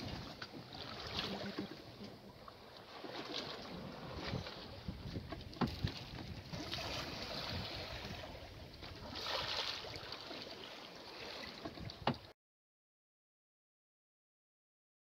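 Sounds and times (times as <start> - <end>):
water washing past hull: 0.0 - 12.3
wind on microphone: 3.7 - 9.2.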